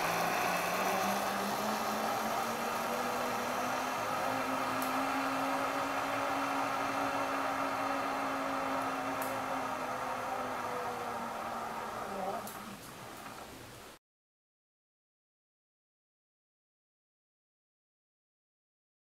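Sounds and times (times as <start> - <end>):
zip line pulleys whirring: 0.0 - 13.5.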